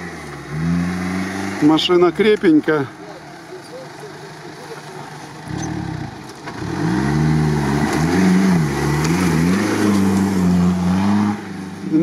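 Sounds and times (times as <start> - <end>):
engine revving under load: 0.0 - 2.3, 5.1 - 12.0.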